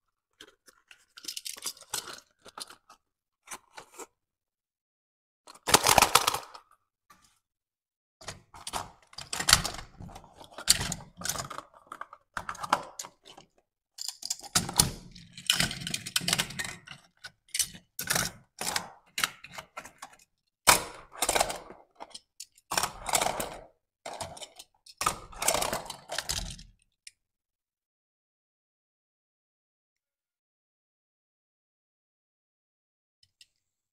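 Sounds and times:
toy cars clicking and knocking: 0.4 - 3.0, 5.5 - 6.6, 8.2 - 26.8.

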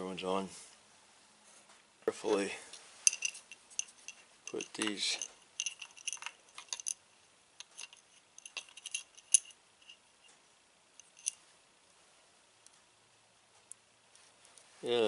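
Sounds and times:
small metal and plastic parts clicking: 3.1 - 7.0, 7.6 - 10.0, 11.0 - 11.4.

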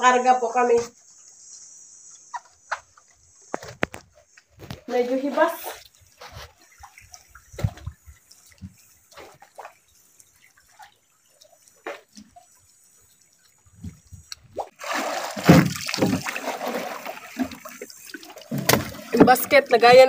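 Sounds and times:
water splashing and sloshing: 2.3 - 20.0
water dripping: 5.4 - 20.0.

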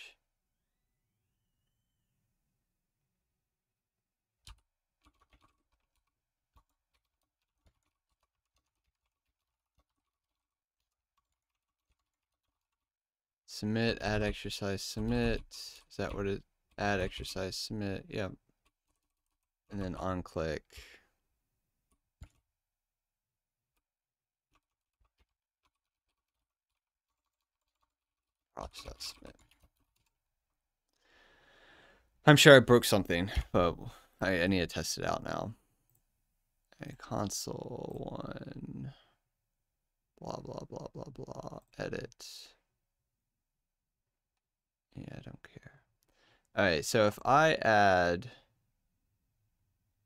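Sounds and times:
faint keyboard typing: 4.4 - 12.9, 18.1 - 20.0, 21.9 - 22.5, 24.5 - 30.2.

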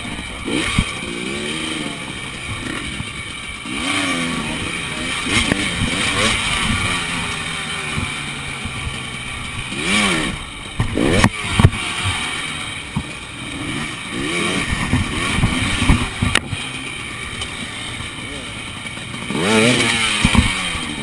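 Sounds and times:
motorcycle engine revving: 0.0 - 21.0
motorcycle knocking against tyres: 12.9 - 13.2, 14.2 - 16.7.

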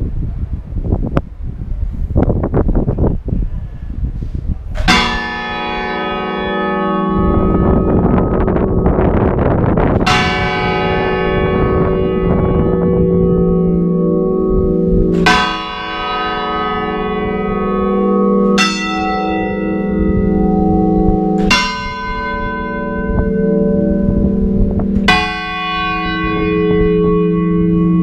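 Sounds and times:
church bells tolling: 4.8 - 28.0.

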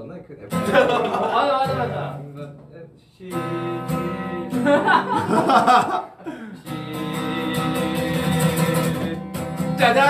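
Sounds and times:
acoustic guitar strumming: 0.5 - 10.0
voices and laughter: 0.6 - 2.2, 4.6 - 6.5.

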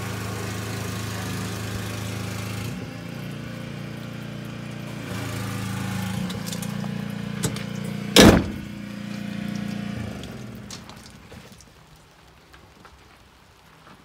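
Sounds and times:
engine idling: 0.0 - 11.5
loud thump: 8.2 - 8.7.

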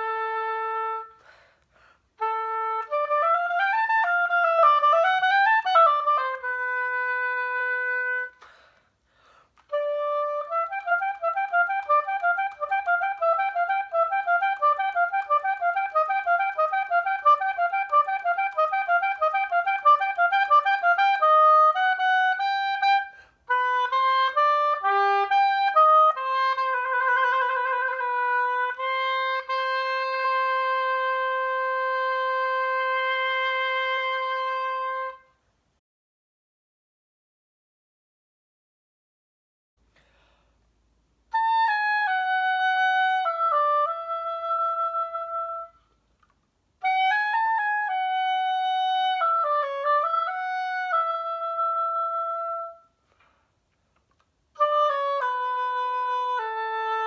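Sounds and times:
solo oboe playing: 0.0 - 8.7, 9.6 - 35.5, 41.3 - 46.0, 46.8 - 53.2, 54.5 - 57.0
player breathing: 1.2 - 2.1, 8.4 - 9.6, 39.9 - 40.7.

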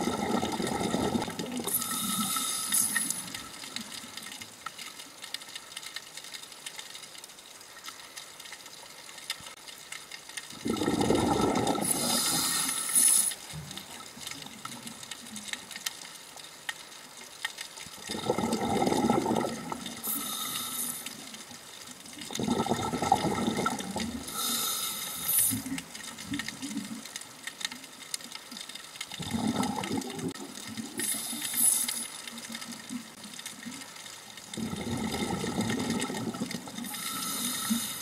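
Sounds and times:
regulator bubbling exhalations: 0.0 - 3.6, 10.6 - 13.8, 18.0 - 21.3, 22.2 - 25.9, 29.2 - 32.1, 34.5 - 38.0
faint crackle of clicks: 0.0 - 38.0
regulator hissing inhalation: 1.7 - 3.4, 11.8 - 13.4, 20.0 - 21.2, 24.3 - 25.8, 31.0 - 32.1, 36.8 - 38.0.

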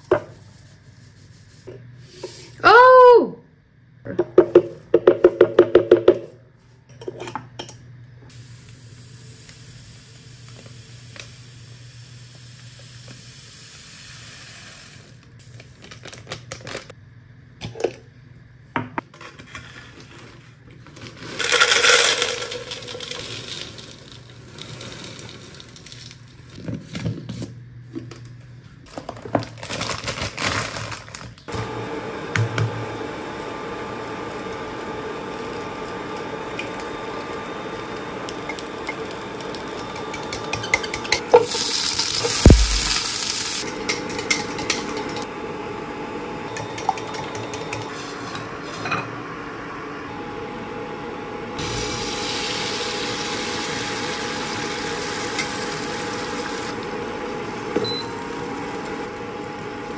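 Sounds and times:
hissing grain pouring: 41.4 - 43.6, 51.6 - 56.8.

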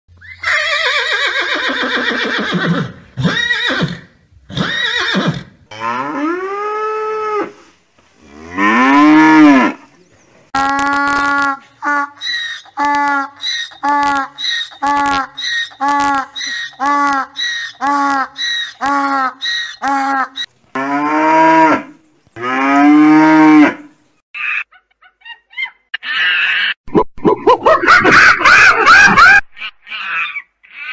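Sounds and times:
cow mooing: 8.3 - 9.9.

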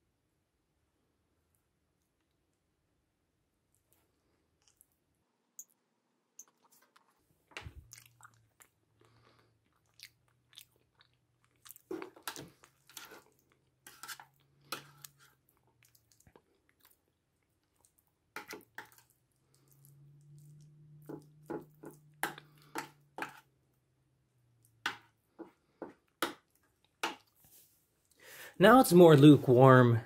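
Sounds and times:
chewing: 3.7 - 5.0, 6.4 - 23.5.

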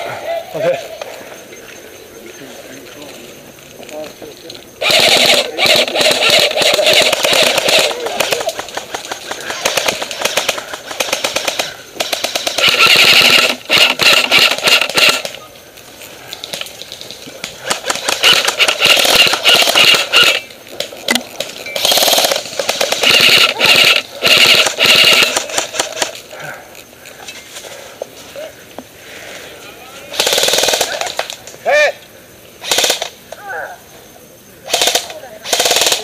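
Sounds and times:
airsoft rifle firing bursts: 4.8 - 15.3, 17.6 - 20.5, 21.8 - 26.2, 30.1 - 31.2, 32.6 - 33.1, 34.7 - 36.0.

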